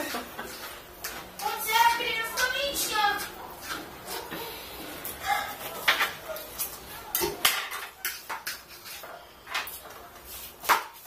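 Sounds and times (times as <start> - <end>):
utensil scraping plastic bowl: 0.0 - 5.1.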